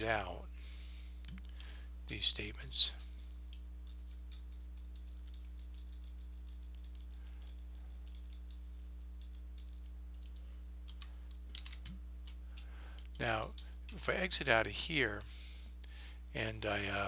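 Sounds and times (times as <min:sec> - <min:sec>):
keyboard keys clicking: 0:03.5 - 0:12.4.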